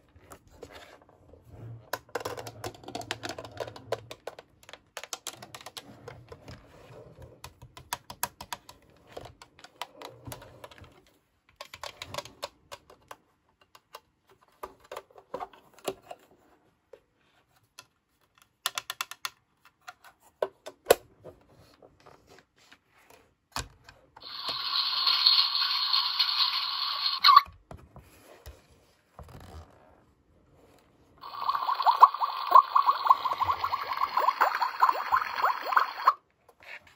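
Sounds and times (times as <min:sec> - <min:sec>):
fingers clicking plastic toy buttons: 0:18.6 - 0:19.4
toy electronic sound effect: 0:24.2 - 0:27.5.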